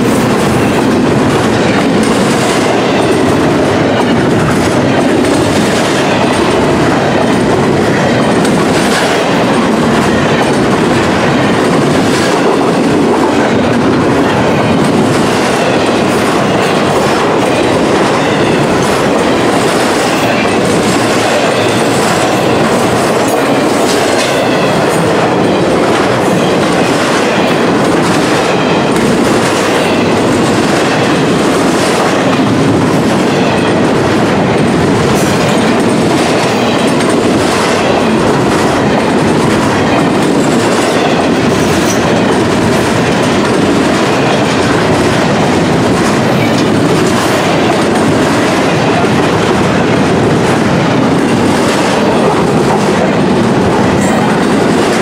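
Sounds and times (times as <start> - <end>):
freight train rolling past: 0.0 - 55.0
train wheel clicks: 0.0 - 55.0.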